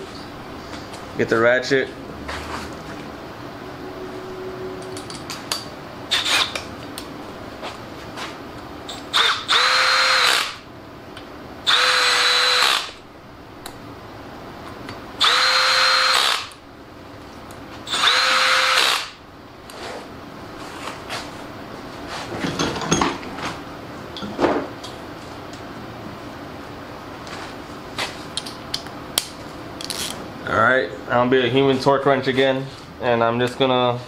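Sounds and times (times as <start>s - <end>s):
electric ratchet whining: 8.9s - 10.6s, 11.7s - 13.0s, 15.2s - 16.6s, 17.9s - 19.2s.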